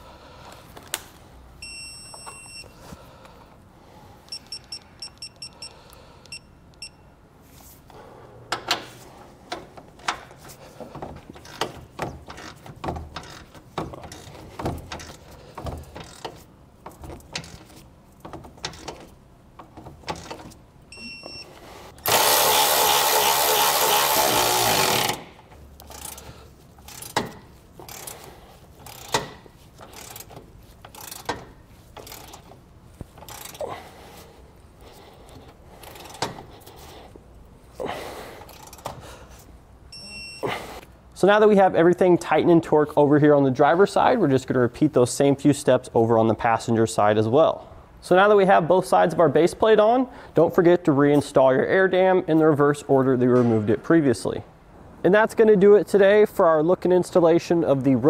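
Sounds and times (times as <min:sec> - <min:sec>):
short electronic beeps: 0:01.6 - 0:02.7, 0:04.3 - 0:05.7, 0:20.9 - 0:21.5
wrench clicking: 0:11.4 - 0:20.6, 0:22.0 - 0:33.6, 0:35.8 - 0:36.4, 0:38.4 - 0:39.0
loud steady buzzing: 0:22.0 - 0:25.4.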